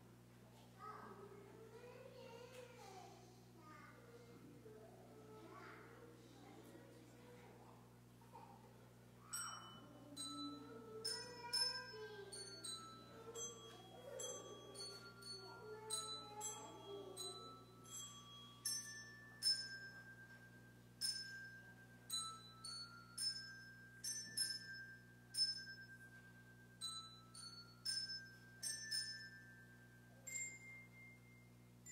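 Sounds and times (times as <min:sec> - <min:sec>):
faint steady hum: 0:00.0 - 0:31.9
bell-like melody notes: 0:09.2 - 0:31.9.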